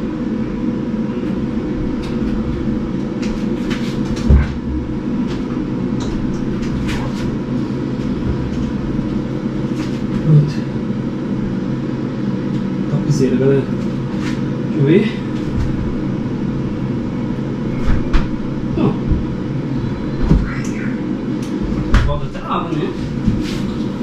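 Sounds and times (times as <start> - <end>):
heavy knock: 4.2 - 4.9.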